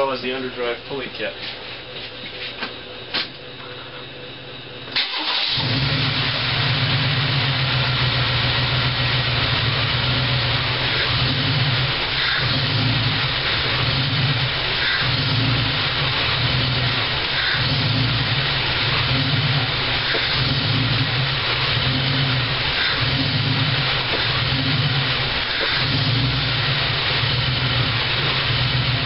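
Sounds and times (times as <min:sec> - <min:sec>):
car engine starting and running: 0:04.9 - 0:29.0.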